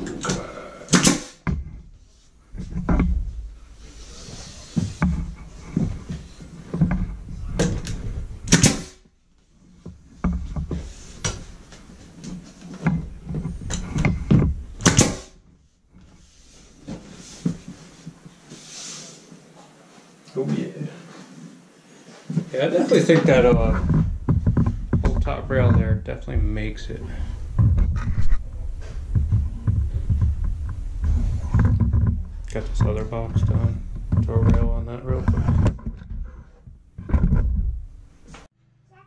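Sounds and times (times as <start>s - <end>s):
nail gun firing: 0.9s - 1.4s, 8.5s - 9.0s, 14.8s - 15.3s.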